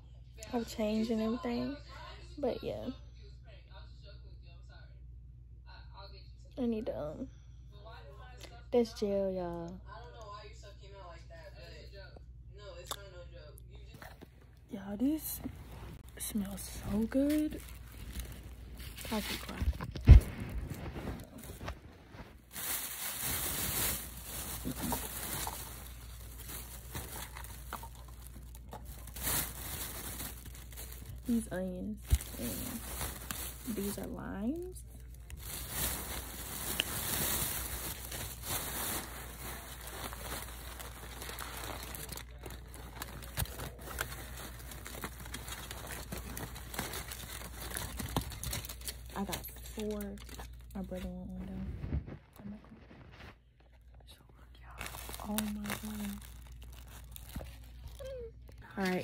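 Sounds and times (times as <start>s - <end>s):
plastic bag rustling: 14.3s - 53.6s, 54.6s - 59.0s
aluminium foil crinkling: 14.8s - 59.0s.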